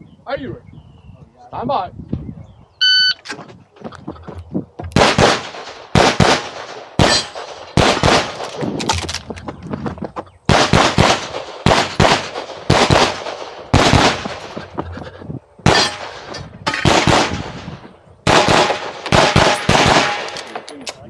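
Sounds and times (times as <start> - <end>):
pistol shots: 4.9 - 8.8, 10.5 - 14.6, 15.6 - 20.8.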